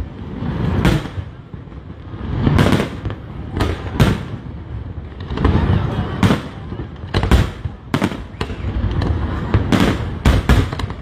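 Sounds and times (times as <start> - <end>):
fireworks bangs: 0.0 - 11.0.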